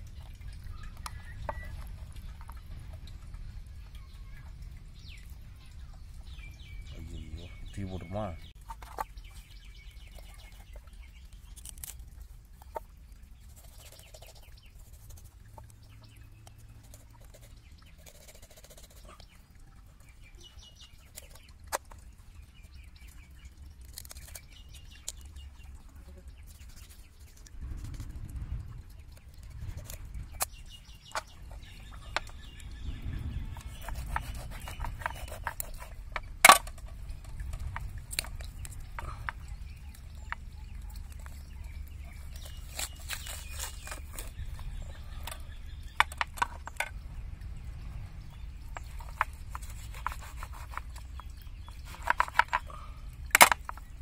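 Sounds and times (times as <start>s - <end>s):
bird calls: 0.0s - 3.2s, 3.8s - 12.0s, 12.6s - 27.9s, 28.5s - 54.0s
low rumble: 27.5s - 34.6s, 46.6s - 49.5s.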